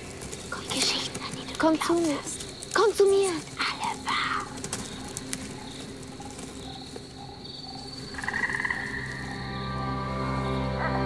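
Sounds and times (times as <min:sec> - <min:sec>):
frogs croaking: 0:00.0 - 0:11.0
frog trilling call: 0:03.6 - 0:11.0
low steady drone: 0:03.6 - 0:11.0.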